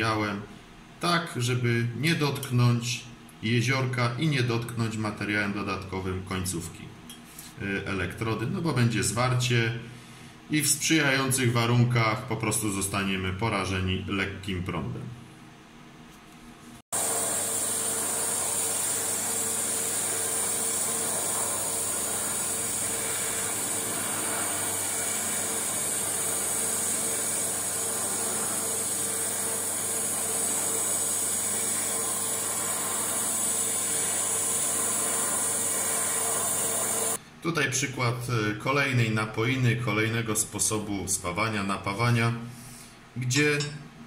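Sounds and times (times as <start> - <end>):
welding arc hissing: 16.9 - 37.2.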